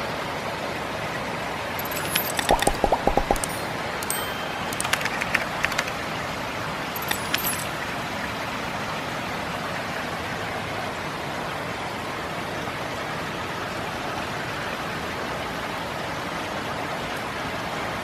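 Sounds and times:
sharp ticks: 0:01.8 - 0:06.0.

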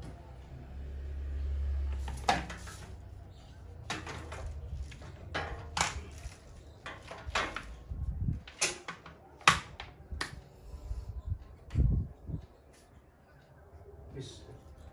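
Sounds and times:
hard objects knocking and clattering: 0:03.8 - 0:10.3.

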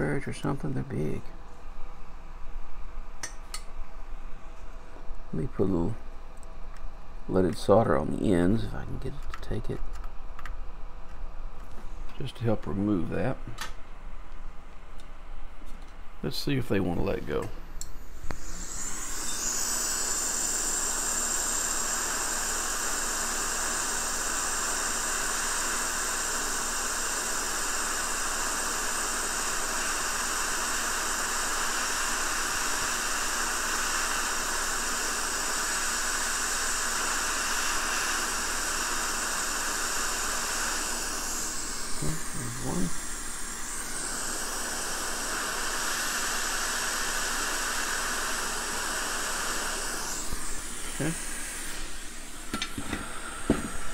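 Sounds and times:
hot air station hissing: 0:18.0 - 0:53.9.

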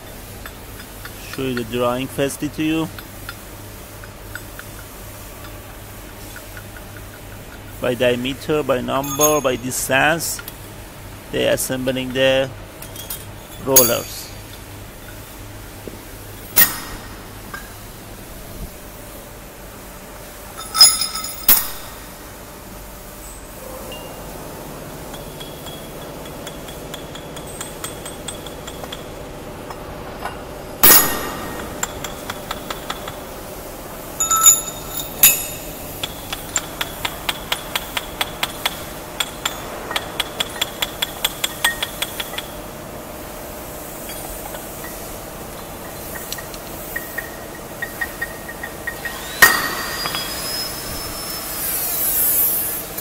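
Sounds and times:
workshop hum: 0:00.0 - 0:53.0
steel parts clinking: 0:09.0 - 0:10.6, 0:12.8 - 0:15.3, 0:16.4 - 0:17.8, 0:20.5 - 0:22.1, 0:25.1 - 0:33.3, 0:34.1 - 0:42.6, 0:43.9 - 0:52.7.

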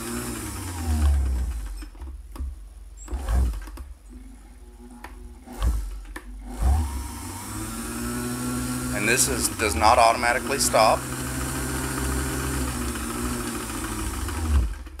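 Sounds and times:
sewing machine motor whirring: 0:00.0 - 0:02.0, 0:05.4 - 0:15.0.

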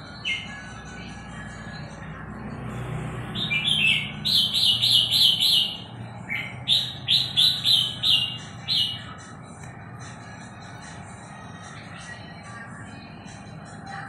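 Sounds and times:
bird chirping song: 0:00.0 - 0:02.0, 0:03.2 - 0:09.3.

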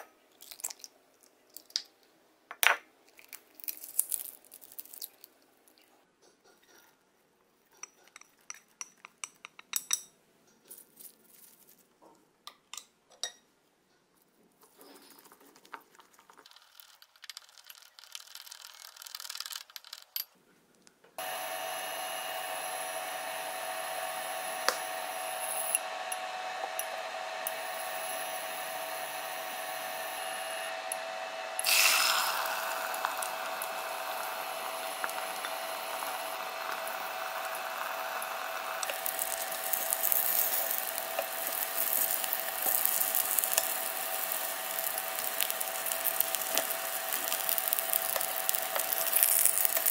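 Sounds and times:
egg sizzling in a hot pan: 0:21.2 - 0:49.9.

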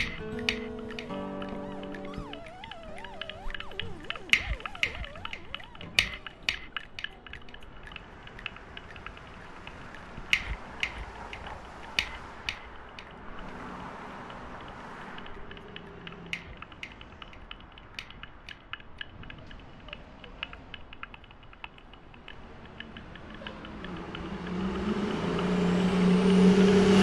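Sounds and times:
irregular clicking and ticking: 0:00.0 - 0:27.0.

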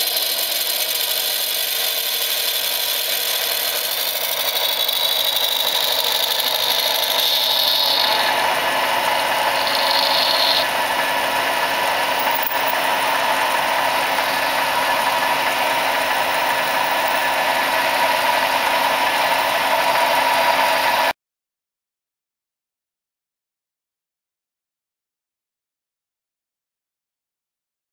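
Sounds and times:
drill cutting hiss: 0:00.0 - 0:10.7, 0:11.9 - 0:18.0
lathe running: 0:00.0 - 0:21.1.

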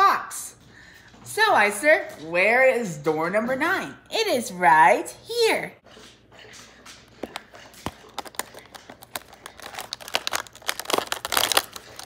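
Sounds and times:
cardboard crackling and tearing: 0:07.8 - 0:12.0.

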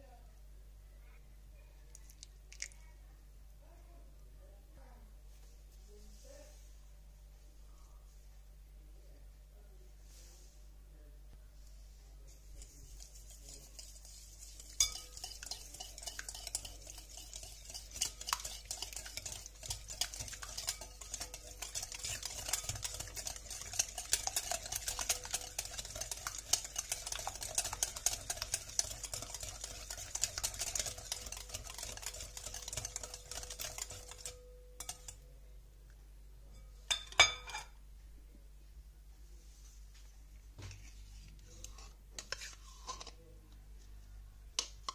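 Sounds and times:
whisk beating in glass bowl: 0:12.4 - 0:35.2.

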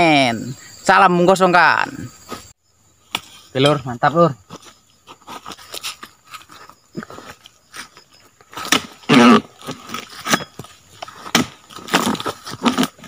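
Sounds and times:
chisel chopping palm fronds: 0:08.5 - 0:13.0.

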